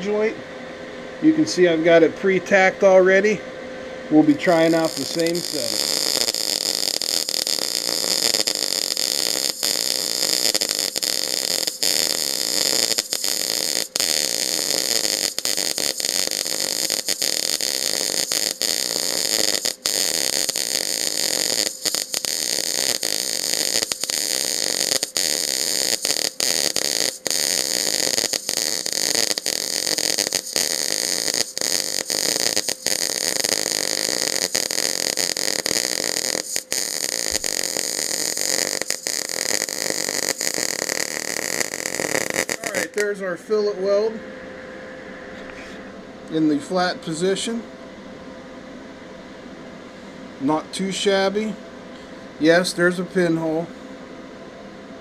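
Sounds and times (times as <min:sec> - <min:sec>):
welding arc sizzling hiss: 0:04.1 - 0:44.2.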